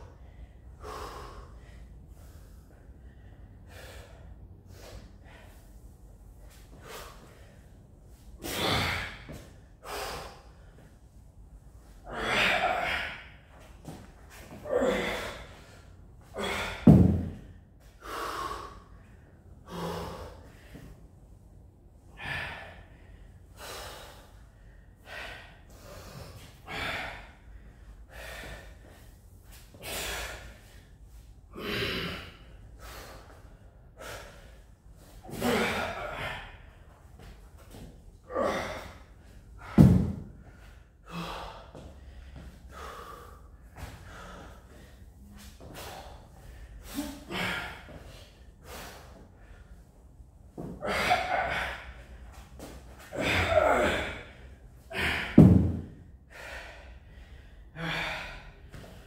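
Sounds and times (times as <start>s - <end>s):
man breathing hard: 0.0s - 59.0s
heavy thumps: 16.8s - 17.4s, 39.6s - 40.4s, 55.2s - 56.0s.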